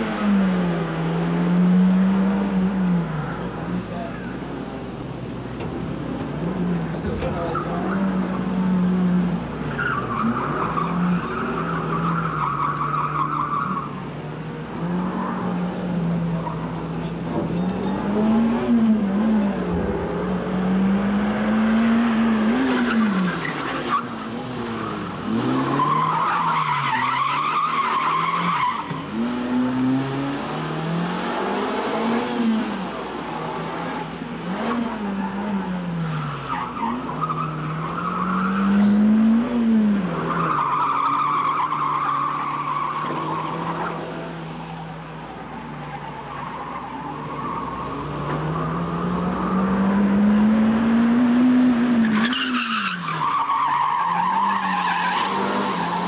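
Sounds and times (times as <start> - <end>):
car engine revving: 5.0 - 56.0
tyre squeal: 9.7 - 14.0.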